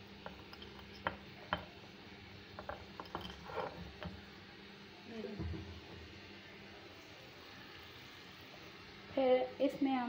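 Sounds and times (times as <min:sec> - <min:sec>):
faint steady hum: 0:00.0 - 0:10.0
spoon scraping: 0:00.2 - 0:01.7, 0:02.6 - 0:04.2
spoon tapping spice containers: 0:00.2 - 0:01.8.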